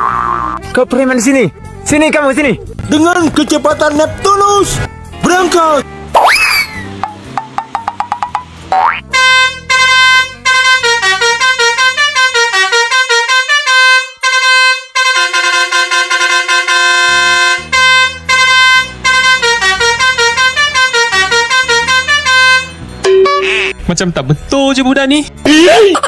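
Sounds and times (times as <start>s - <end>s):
musical truck air horn tune: 8.8s - 23.8s.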